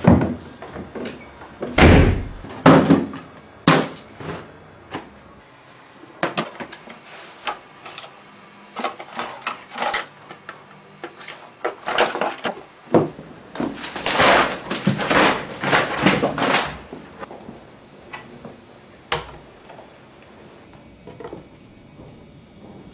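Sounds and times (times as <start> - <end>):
objects rummaged through: 13.6 - 17.1.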